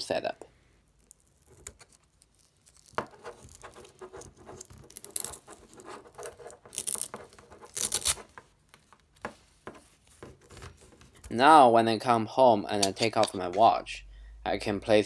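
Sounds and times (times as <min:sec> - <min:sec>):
velcro tape peeling and pressing: 0:01.0 - 0:08.3.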